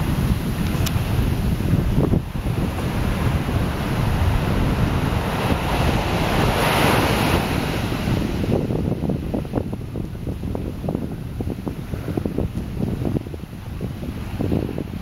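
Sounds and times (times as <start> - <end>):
small waves washing onto sand: 0.0 - 15.0
wind rumbling on microphone: 0.0 - 15.0.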